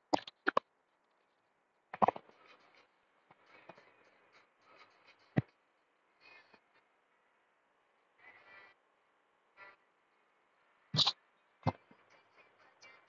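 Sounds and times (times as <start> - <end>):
objects knocking and clunking: 1.9 - 4.2.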